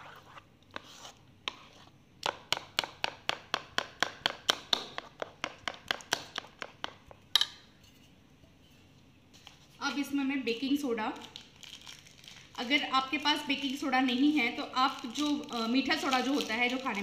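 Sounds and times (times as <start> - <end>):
spoon tapping bowl beating batter: 1.5 - 7.6.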